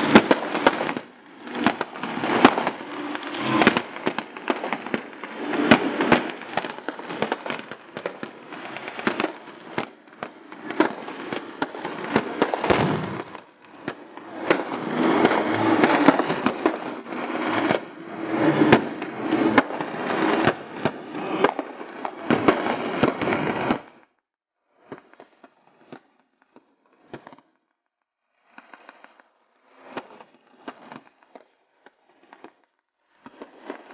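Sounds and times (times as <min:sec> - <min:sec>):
machine gun firing in bursts: 0:10.7 - 0:13.4
rifle shots: 0:12.7 - 0:13.4.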